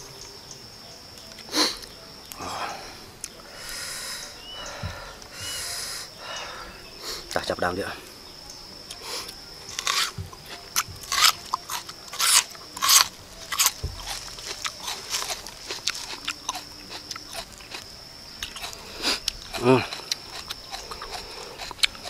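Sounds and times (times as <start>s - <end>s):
wet chewing: 8.8s - 22.0s
crunching bites into onion: 9.7s - 17.8s.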